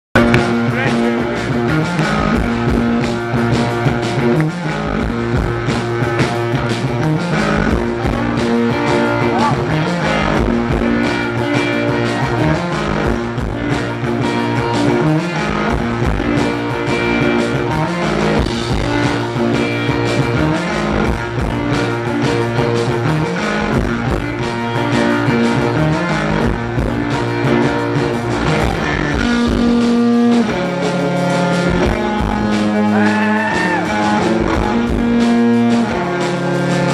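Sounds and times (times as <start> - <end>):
electric guitar riff: 0.2 - 36.9
steady drum beat: 0.2 - 36.9.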